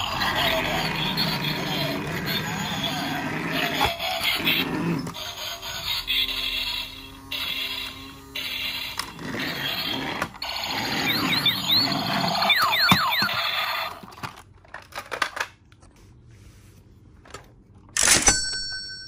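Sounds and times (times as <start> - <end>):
toy electronic sound effects: 0.0 - 14.1.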